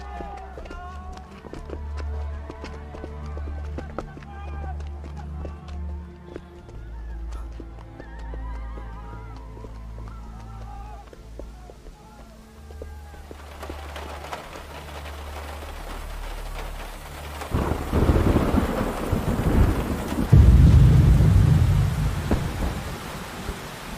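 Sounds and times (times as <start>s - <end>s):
heavy rain falling: 9.0s - 23.9s
deep rumble of thunder: 15.0s - 23.9s
low drone: 20.3s - 23.6s.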